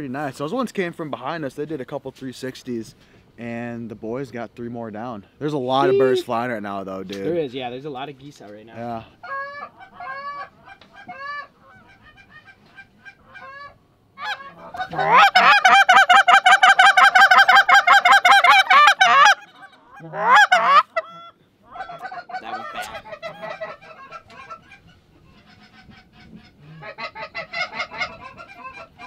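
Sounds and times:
goose call clucks and honks: 0:08.9 - 0:29.0
faint goose honks: 0:09.0 - 0:29.0.

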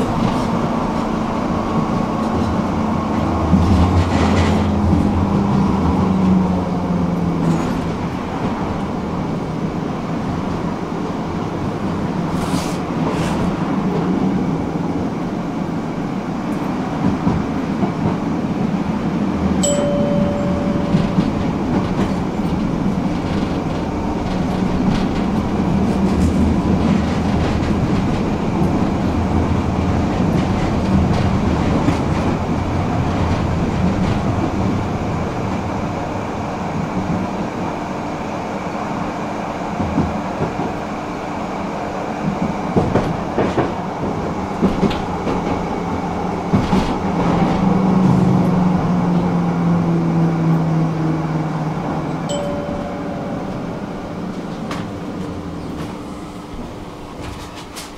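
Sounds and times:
wheels clacking over rail joints: 0:00.0 - 0:09.4, 0:19.4 - 0:35.7, 0:42.2 - 0:49.1
tram rolling rumble: 0:00.0 - 0:57.9.

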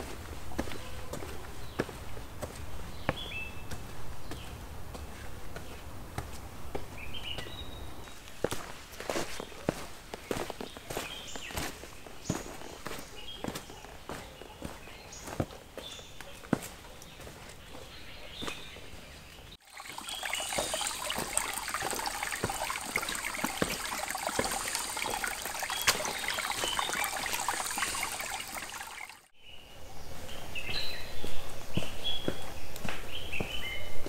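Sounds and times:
footsteps on wet trail: 0:00.0 - 0:29.3, 0:30.6 - 0:33.9
footsteps crunching dry leaves: 0:08.1 - 0:17.7
stream trickling over rocks: 0:19.6 - 0:29.3.

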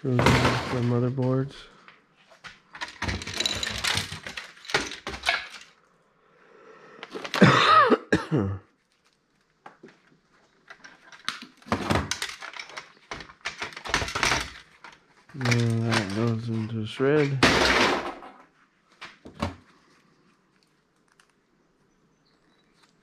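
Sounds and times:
plastic and metal parts clattering: 0:00.0 - 0:01.4, 0:02.7 - 0:05.8, 0:07.0 - 0:07.6, 0:09.7 - 0:19.7.

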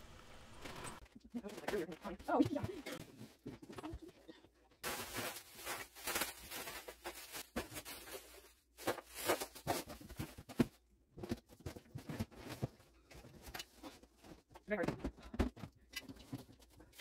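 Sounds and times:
plastic bags rustling: 0:04.8 - 0:10.8.

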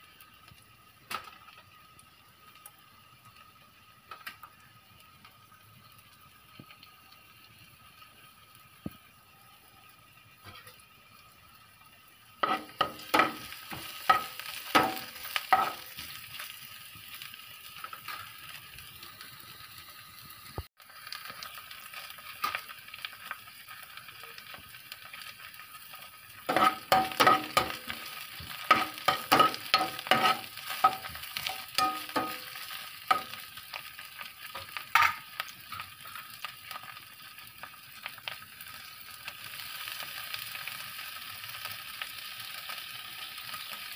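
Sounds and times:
food sizzling in oil: 0:00.0 - 0:43.9
food stirred and scraped in pan: 0:12.4 - 0:18.8, 0:25.1 - 0:37.3.

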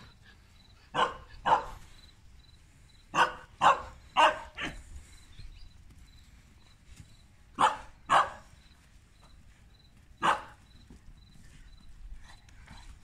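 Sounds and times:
dogs barking: 0:00.9 - 0:01.9, 0:03.1 - 0:04.9, 0:07.6 - 0:08.5, 0:10.2 - 0:10.6.

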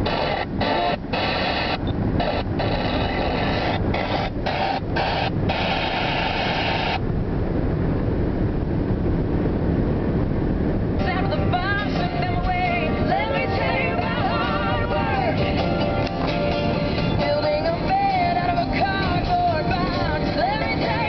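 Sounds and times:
car radio music: 0:00.0 - 0:21.0
car road and engine rumble: 0:00.0 - 0:21.0.

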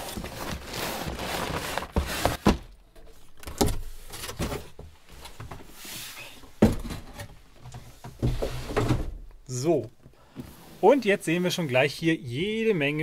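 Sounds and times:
cardboard scraping against cardboard: 0:00.0 - 0:02.6.

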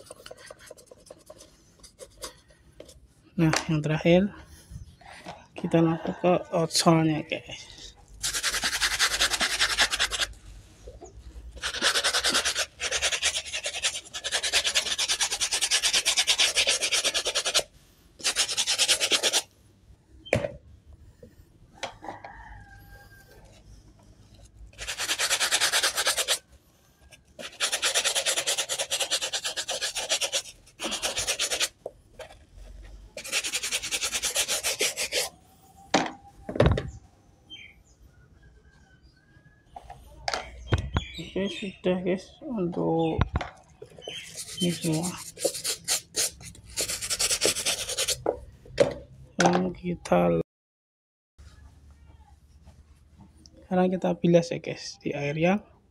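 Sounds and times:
brush scrubbing rubber sole: 0:00.0 - 0:02.5, 0:08.2 - 0:10.4, 0:11.5 - 0:19.5, 0:24.4 - 0:35.3, 0:44.0 - 0:48.3.

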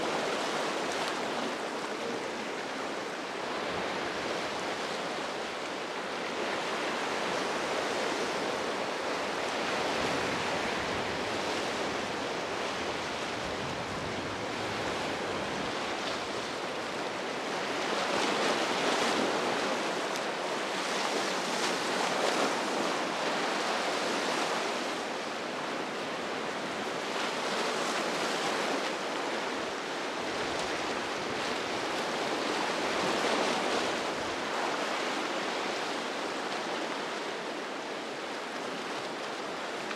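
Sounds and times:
ocean waves breaking: 0:00.0 - 0:39.9.

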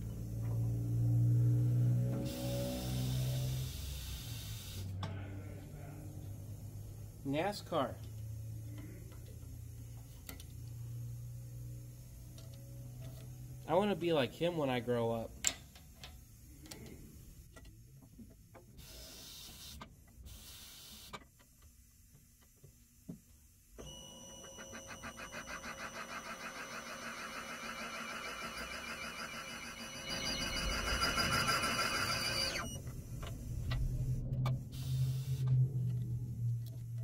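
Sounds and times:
machine cutter whirring with chatter: 0:24.5 - 0:32.8.

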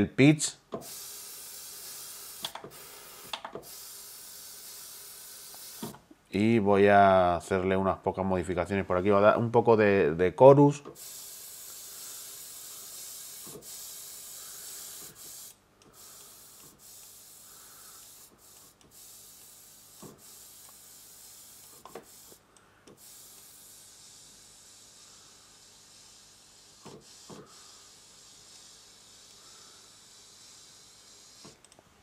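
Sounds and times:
steady hiss: 0:00.8 - 0:06.1, 0:10.9 - 0:31.7.

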